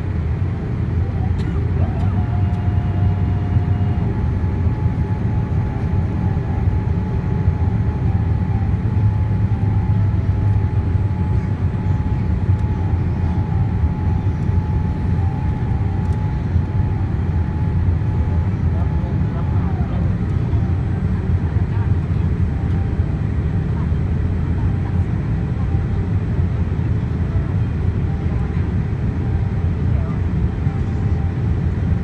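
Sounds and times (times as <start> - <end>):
airplane cabin rumble: 0.0 - 32.0
lower tone: 1.0 - 23.5.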